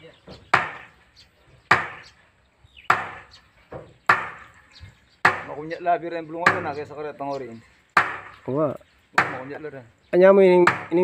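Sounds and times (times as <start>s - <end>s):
hammer knocking on wood: 0.2s - 1.0s, 1.7s - 2.1s, 2.9s - 4.6s, 5.2s - 5.6s, 6.4s - 6.9s, 8.0s - 8.4s, 10.6s - 11.0s.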